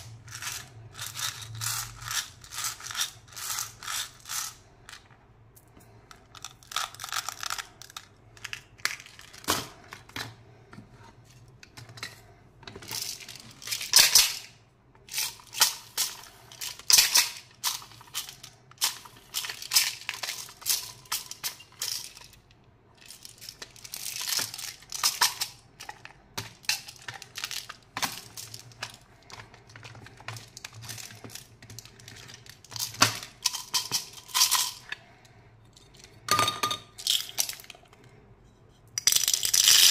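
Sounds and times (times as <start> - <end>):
candies rattling in plastic: 0.0 - 5.0, 6.2 - 10.1, 12.8 - 14.5, 15.1 - 22.4, 23.0 - 35.0, 37.0 - 37.8, 39.0 - 39.9.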